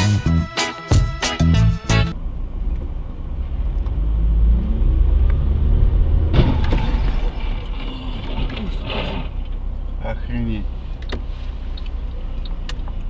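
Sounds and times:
car engine and road rumble: 0.9s - 13.0s
sudden loud noise: 4.3s - 9.3s.

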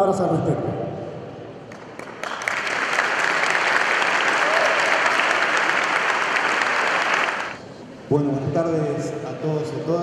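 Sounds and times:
audience applauding: 1.7s - 7.6s.

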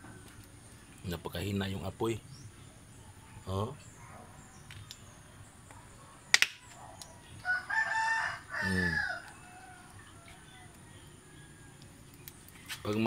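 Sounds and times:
rooster crowing: 7.4s - 12.0s.

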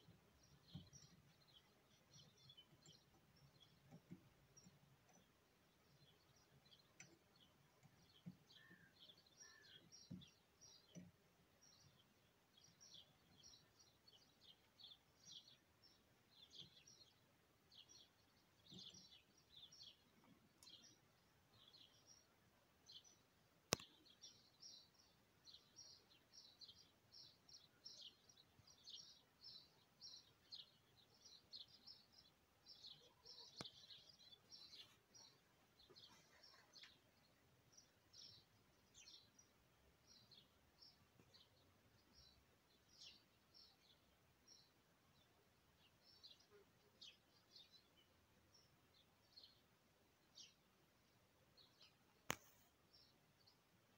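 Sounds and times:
small birds chirping: 0.0s - 53.9s
sharp click: 23.7s - 23.9s, 52.3s - 52.6s.

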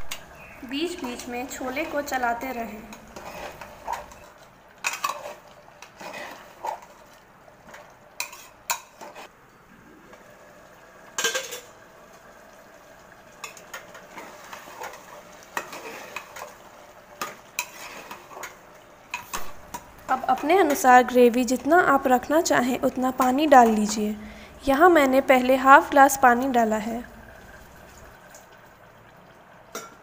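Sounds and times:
faint sizzle of cooking: 0.0s - 30.0s.

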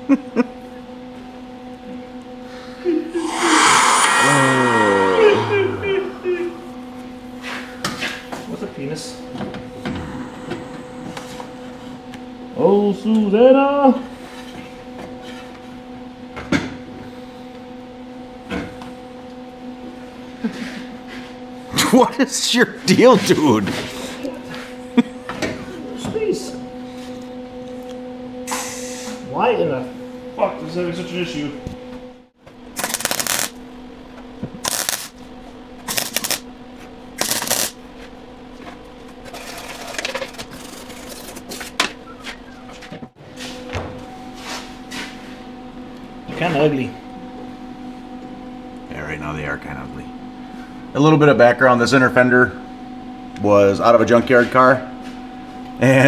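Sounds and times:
electrical hum: 2.5s - 7.8s, 22.1s - 50.9s
steady low hum: 2.9s - 7.8s, 31.1s - 43.2s
arc welder crackling: 32.7s - 33.6s, 34.6s - 35.2s, 35.8s - 36.5s, 37.1s - 37.8s.

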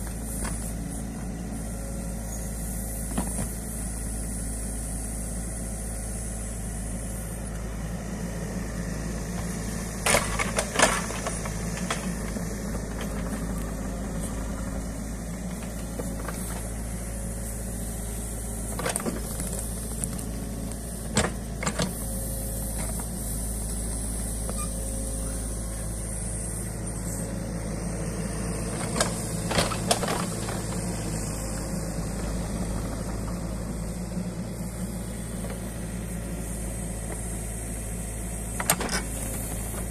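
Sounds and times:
excavator diesel engine running: 0.0s - 39.9s
excavator bucket clunks: 10.0s - 12.2s, 38.6s - 39.5s.

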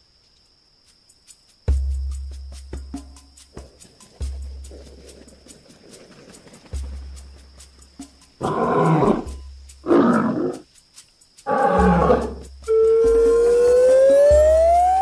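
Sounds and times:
lion roars: 8.4s - 10.6s, 11.5s - 12.4s.

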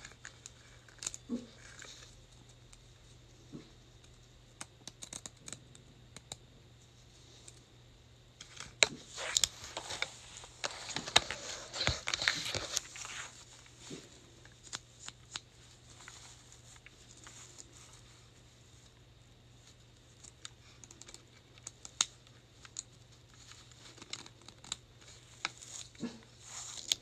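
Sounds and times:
plastic wrapping crinkling: 8.4s - 19.0s.

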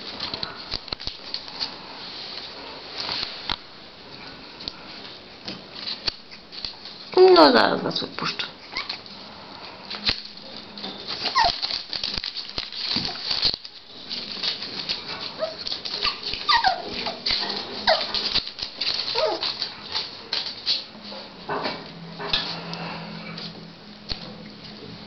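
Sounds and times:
puppies whining: 8.6s - 9.2s, 10.5s - 12.0s, 14.0s - 20.0s
wire playpen rattling: 9.9s - 23.5s.

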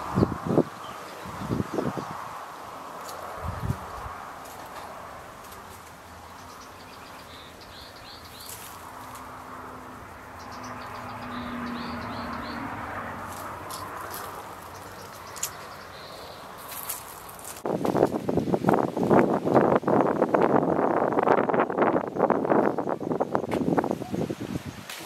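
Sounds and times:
small birds chirping: 0.0s - 2.4s, 3.0s - 9.4s, 10.1s - 17.6s.

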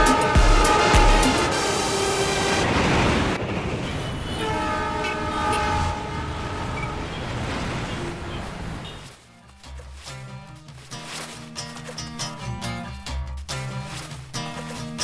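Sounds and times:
electric train rushing past: 0.0s - 8.3s
train horn: 0.0s - 9.1s.

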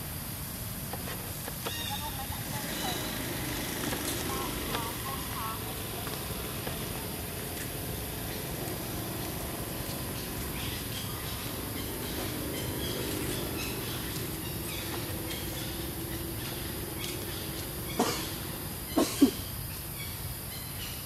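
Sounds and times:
faint bird chirps: 1.6s - 3.3s.

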